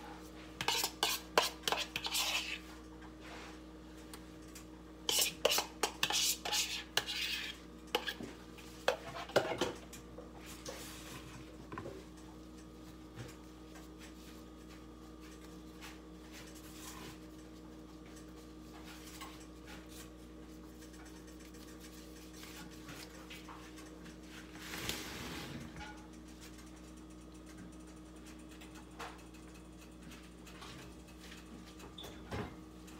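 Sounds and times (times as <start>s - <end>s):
spoon scraping a bowl: 0.6s - 2.7s, 5.1s - 8.2s, 8.8s - 9.6s.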